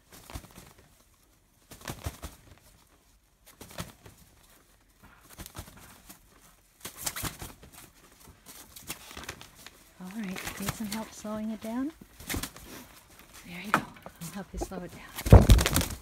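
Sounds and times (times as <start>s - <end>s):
rooster flapping wings: 0.1s - 0.9s, 1.7s - 2.9s, 14.4s - 16.0s.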